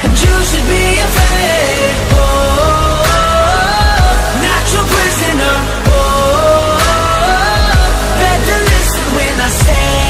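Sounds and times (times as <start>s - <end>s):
pop-rock song: 0.0s - 10.0s.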